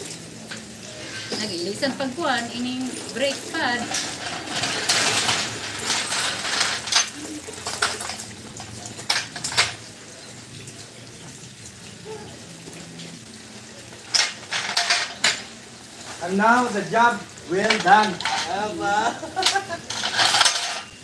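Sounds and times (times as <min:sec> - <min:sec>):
metal tools clinking and knocking: 0:03.2 - 0:09.8, 0:14.1 - 0:16.2, 0:17.6 - 0:21.0.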